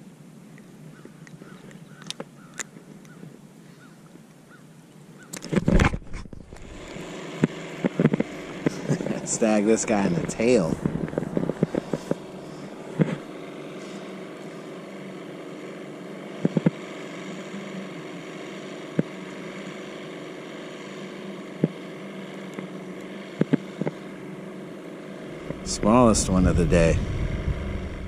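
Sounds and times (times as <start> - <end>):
distant motorboat drone: 0.0 - 28.0
clicks and taps of fishing tackle: 1.2 - 2.7.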